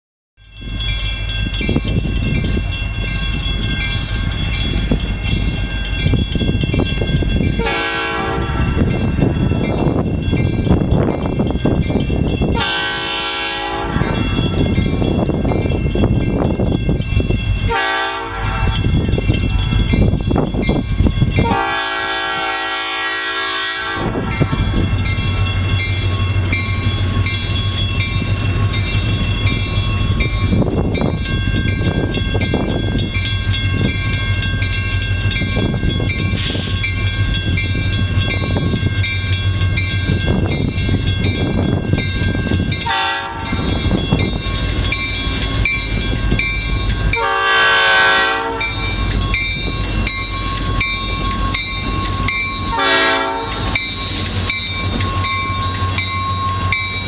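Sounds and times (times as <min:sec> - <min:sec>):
crossing bell ringing: 0:00.4 - 0:57.0
locomotive horn blasts: 0:07.6 - 0:08.8, 0:12.6 - 0:14.5, 0:17.7 - 0:18.9, 0:21.4 - 0:24.6, 0:42.8 - 0:43.6, 0:47.1 - 0:48.8, 0:52.7 - 0:53.7.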